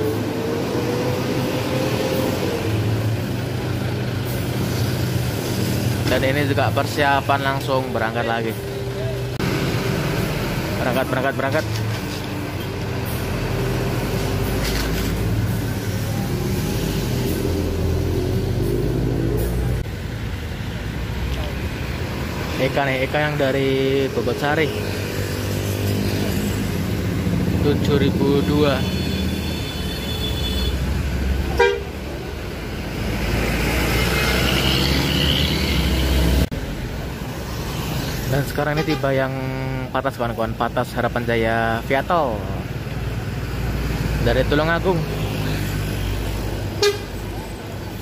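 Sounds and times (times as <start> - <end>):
diesel coach engine drone: 0.0 - 48.0
road traffic rumble: 0.0 - 48.0
bus horn toot: 28.7 - 30.9, 31.5 - 32.0, 38.8 - 39.1, 46.8 - 47.2.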